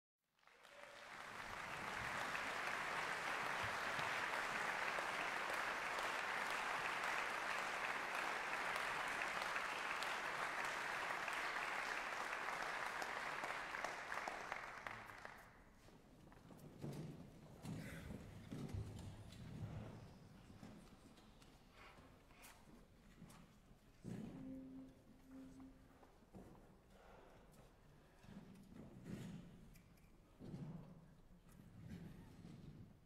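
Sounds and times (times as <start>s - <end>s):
audience applauding: 0.4s - 15.6s.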